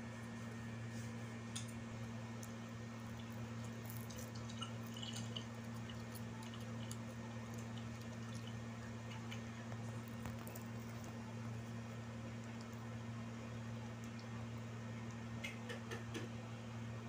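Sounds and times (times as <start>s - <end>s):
child chewing with wet clicks: 1.6s - 14.4s.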